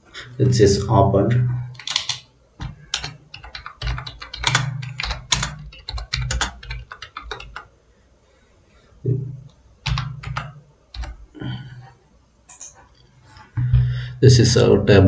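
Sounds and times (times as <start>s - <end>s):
typing on computer keyboard: 1.7s - 7.7s, 9.8s - 11.4s.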